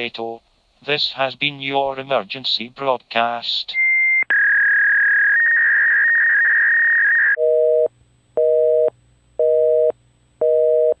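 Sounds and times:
telephone busy signal: 0:07.4 - 0:11.0.

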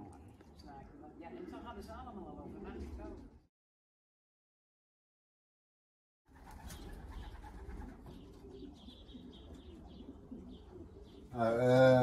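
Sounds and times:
pigeons cooing: 0:06.3 - 0:12.0.

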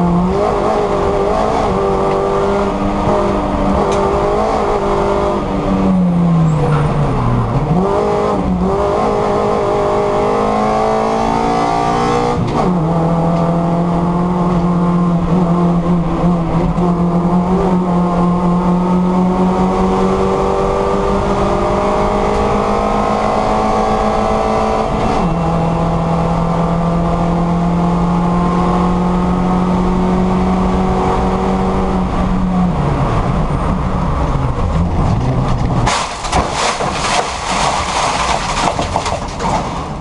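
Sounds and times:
race car engine at high revs: 0:00.0 - 0:40.0
gravel clattering against car: 0:35.0 - 0:40.0.

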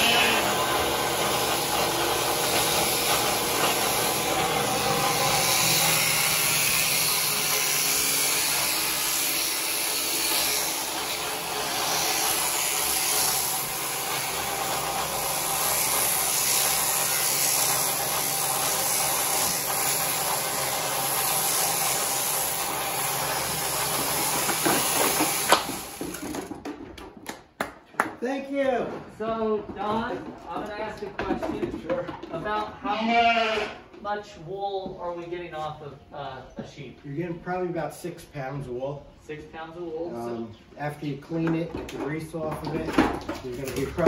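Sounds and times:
electric shears humming: 0:00.0 - 0:26.5.

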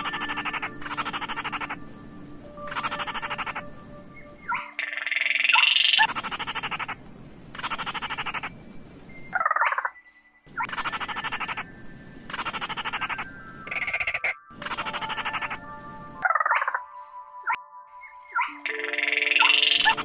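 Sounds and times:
crakes calling with rattling trills: 0:00.0 - 0:20.0.

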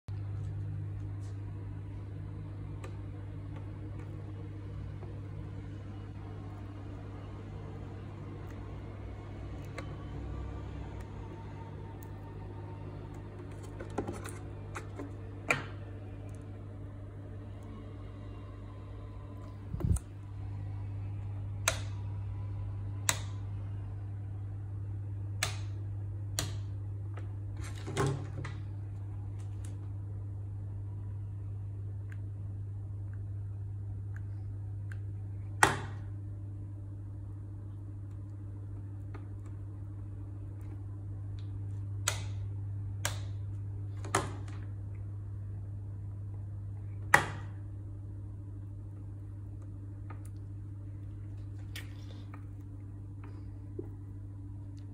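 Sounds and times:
steady low hum: 0:00.0 - 0:54.9
power strip rocker switch clicks: 0:21.6 - 0:22.0
rocker switch clicking: 0:21.6 - 0:22.0, 0:23.0 - 0:23.4, 0:25.4 - 0:25.8.

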